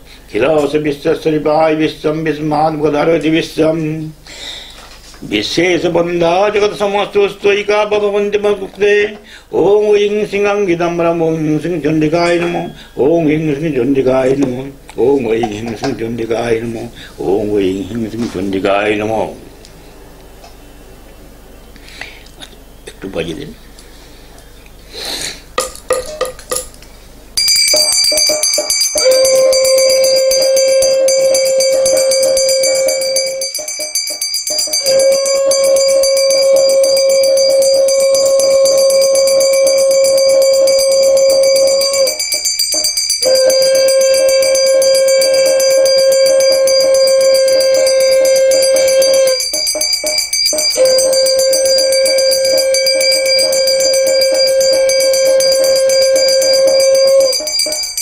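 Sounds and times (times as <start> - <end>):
conch shell blasts: 27.4 - 58.0
hand bell ringing: 27.4 - 58.0
metal gong beaten rapidly: 27.4 - 58.0.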